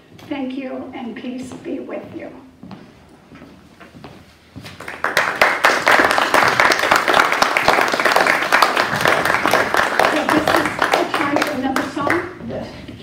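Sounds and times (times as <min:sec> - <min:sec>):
congregation applauding: 0:04.8 - 0:12.2.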